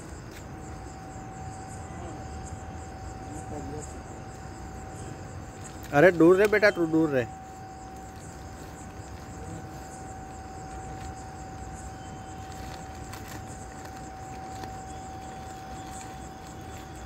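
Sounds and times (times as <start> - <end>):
constant mid-pitched tone: 0.0 - 17.0
low background hum: 0.0 - 17.0
faint clicks and scrapes: 12.4 - 17.0.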